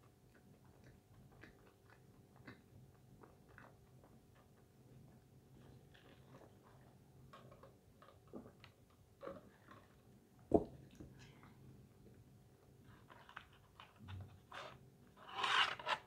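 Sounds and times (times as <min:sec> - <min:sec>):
chewing with mouth clicks: 0:00.0 - 0:10.1.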